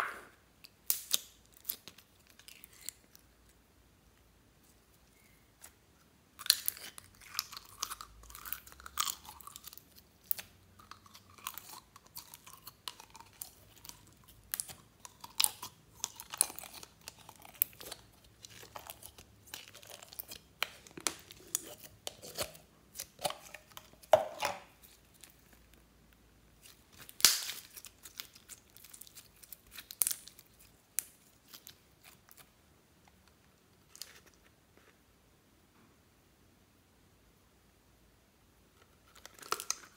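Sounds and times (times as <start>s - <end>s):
slime crackling and popping: 0.0s - 3.3s, 6.4s - 25.8s, 26.6s - 32.5s.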